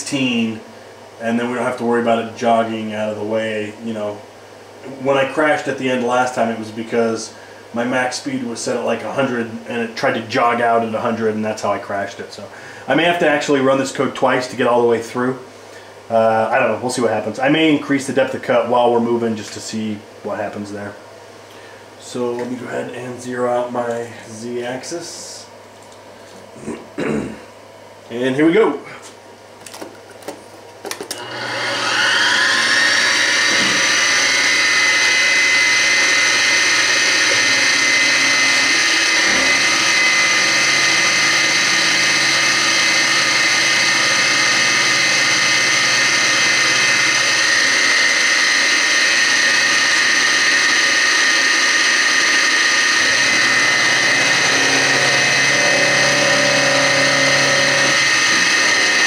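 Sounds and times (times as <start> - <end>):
milling machine spindle whine: 31.1 - 59.0.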